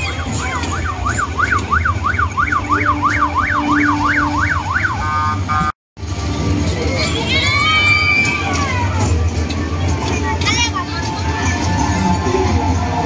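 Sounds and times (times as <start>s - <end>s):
siren yelping: 0.7s - 5.3s
siren steady multi-note tone: 0.7s - 5.7s.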